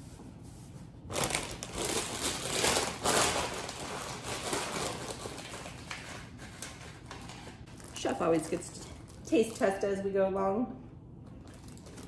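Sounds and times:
plastic chip bag crinkling: 0:01.1 - 0:10.0, 0:11.3 - 0:12.0.

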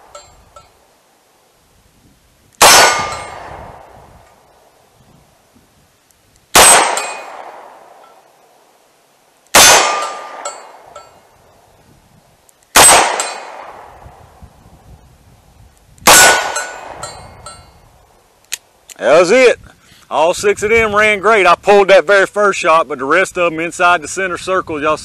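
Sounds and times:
metallic ring of steel targets: 0:00.0 - 0:00.8, 0:02.7 - 0:03.4, 0:06.6 - 0:07.4, 0:09.6 - 0:11.3, 0:13.1 - 0:13.6, 0:16.1 - 0:17.8
revolver shots with echo: 0:09.6 - 0:10.9.

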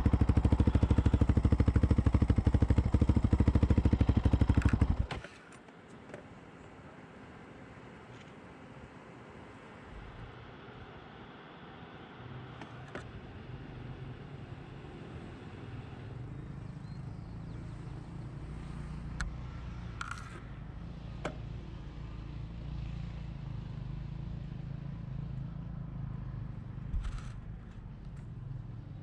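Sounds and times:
atv engine idling: 0:00.0 - 0:05.2, 0:13.0 - 0:22.6.

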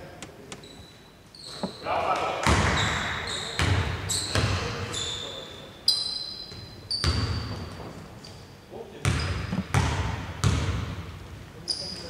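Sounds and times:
sneaker squeaks: 0:00.6 - 0:09.8, 0:11.6 - 0:12.0
basketball bouncing on hardwood: 0:02.4 - 0:03.0, 0:09.0 - 0:11.0.

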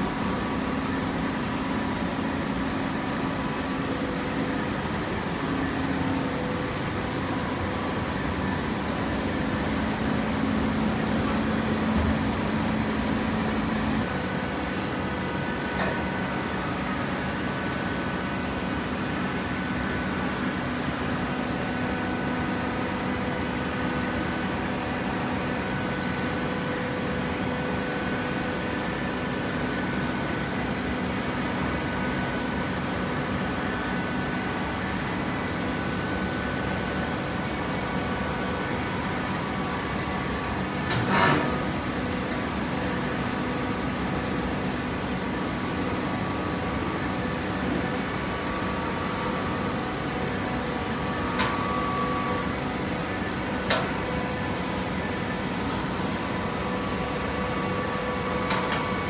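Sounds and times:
hydraulic baler humming: 0:00.0 - 0:20.1.

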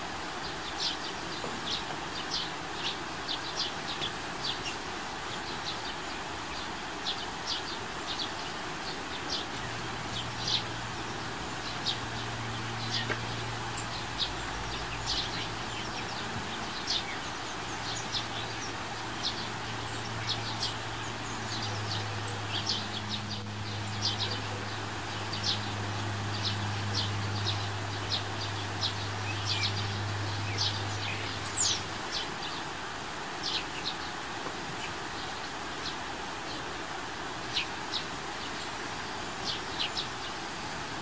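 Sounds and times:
river water flowing: 0:00.0 - 0:41.0
birds chirping: 0:00.4 - 0:36.7.

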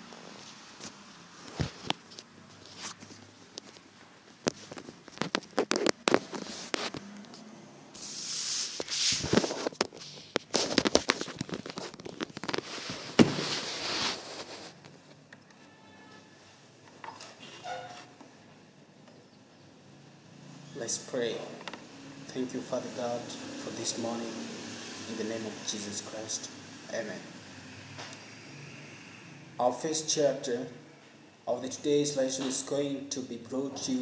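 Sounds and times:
rubbing and rustling on microphone: 0:00.2 - 0:07.2, 0:08.0 - 0:15.1.

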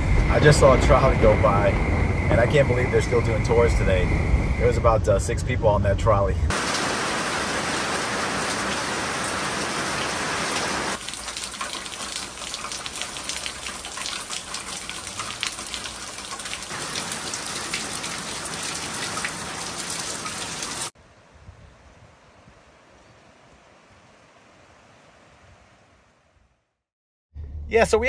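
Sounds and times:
heavy rain falling: 0:06.5 - 0:21.0
rainwater splattering on wooden deck: 0:06.5 - 0:21.0.

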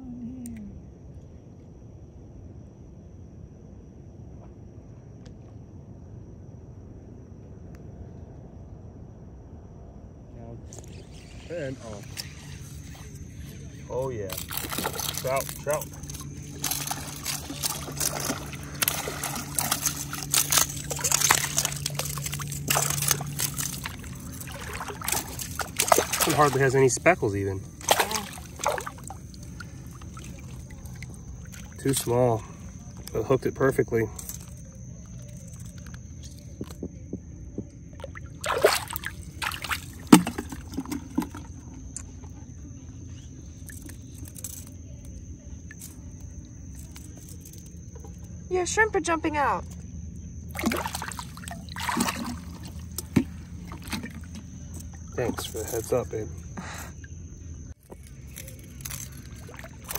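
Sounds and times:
fish splashing at surface: 0:10.7 - 0:33.3, 0:38.0 - 0:42.2, 0:50.5 - 0:57.1, 0:57.8 - 0:59.9
water trickling from net: 0:12.0 - 0:33.4, 0:38.0 - 0:41.8, 0:43.6 - 0:44.8, 0:45.6 - 0:48.2, 0:50.5 - 0:56.8, 0:57.7 - 0:59.9.

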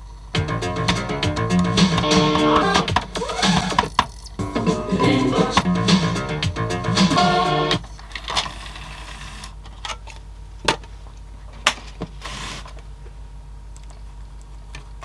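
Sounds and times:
music from cd player: 0:00.3 - 0:07.9.

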